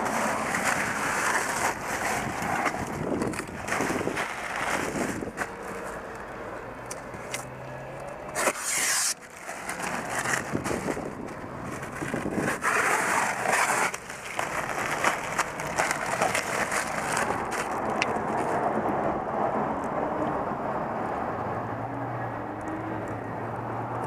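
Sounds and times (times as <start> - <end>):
plastic sheeting crinkling: 0.0 - 6.1, 8.3 - 18.7.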